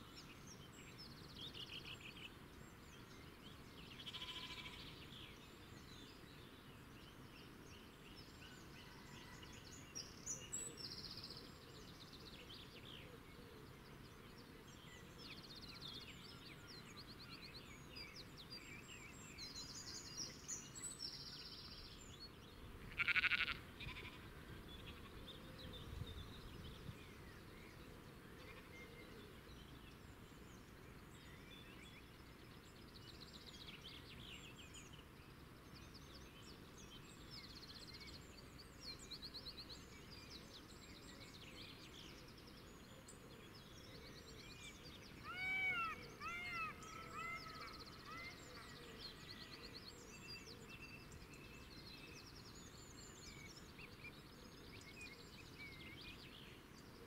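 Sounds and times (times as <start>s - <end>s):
low background noise: 0.0s - 57.0s
small birds chirping: 0.0s - 57.0s
bleat-like animal call: 4.0s - 4.9s, 22.9s - 25.2s.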